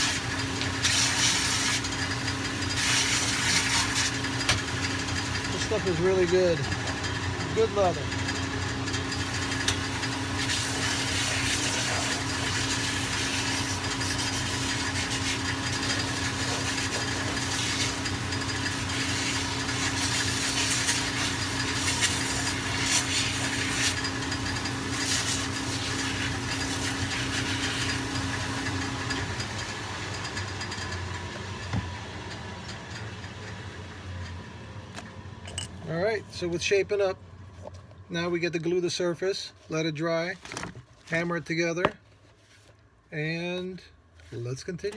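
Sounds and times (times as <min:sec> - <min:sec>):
leather grinding rasp: 0:00.0 - 0:04.3, 0:10.4 - 0:28.2
sanding machine motor hum: 0:00.0 - 0:35.4.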